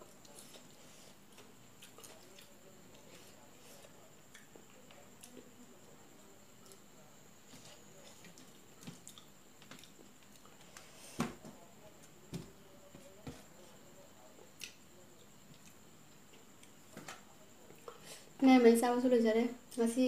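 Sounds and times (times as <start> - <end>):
chewing: 0.1 - 5.5, 7.5 - 10.9, 15.4 - 16.8.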